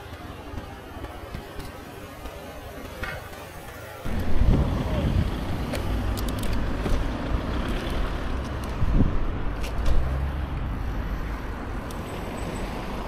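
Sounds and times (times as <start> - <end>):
bicycle tyres on pavement: 0.0 - 13.0
city traffic: 0.0 - 13.0
wind rumble on microphone: 4.0 - 10.8.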